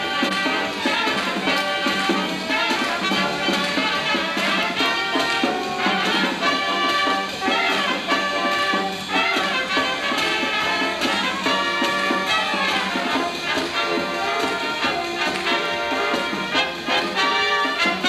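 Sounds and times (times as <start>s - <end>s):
brass instruments: 0.0s - 18.0s
cymbals: 0.0s - 18.0s
saxophones and clarinets: 0.0s - 18.0s.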